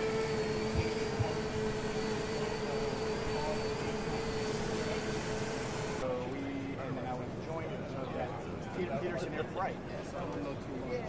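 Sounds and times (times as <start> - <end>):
drone propellers humming: 0.0 - 6.0.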